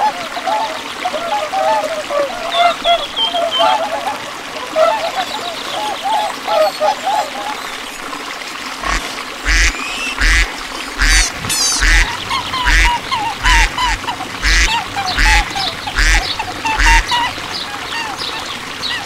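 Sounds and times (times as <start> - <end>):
softer shorter duck calls: 8.8 - 17.3
ducks quacking: 8.8 - 19.0.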